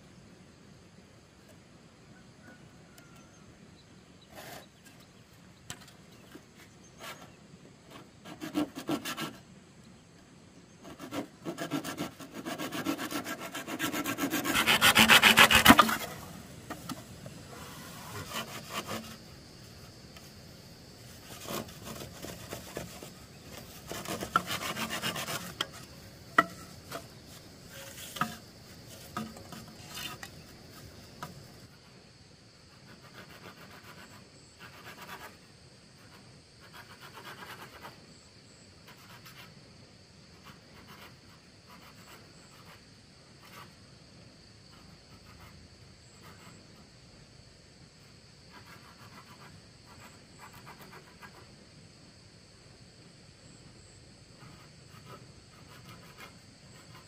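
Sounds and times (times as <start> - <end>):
hand tool rasping on wood: 10.8 - 16.2, 21.3 - 27.1.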